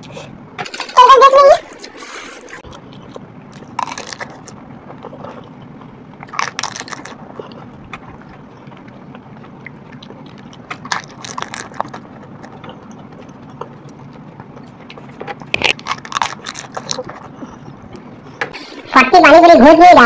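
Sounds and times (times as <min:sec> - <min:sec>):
crisp shells crunching: 0:03.0 - 0:04.6, 0:06.2 - 0:07.4, 0:10.0 - 0:12.5, 0:15.4 - 0:17.2.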